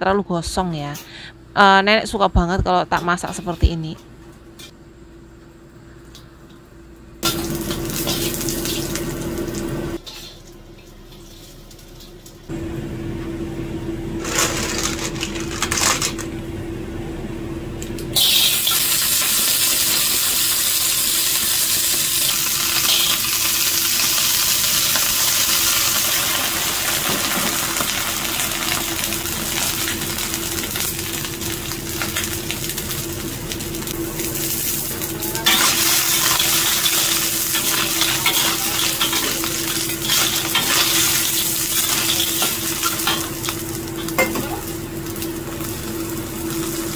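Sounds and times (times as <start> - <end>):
ginger sizzling in hot oil: 7.2 - 10.4, 18.2 - 46.9.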